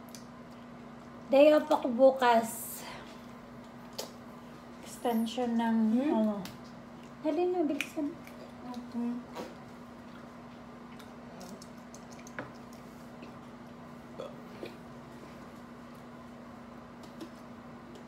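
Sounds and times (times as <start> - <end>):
clicks and smacks of eating seafood: 0.0 - 1.3, 3.6 - 4.2, 6.2 - 13.8, 17.0 - 18.0
steady low hum: 0.0 - 18.0.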